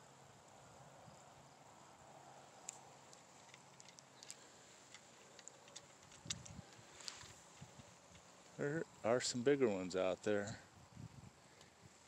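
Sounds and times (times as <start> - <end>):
small sharp ticks: 2.6 - 8.6, 11.5 - 11.8.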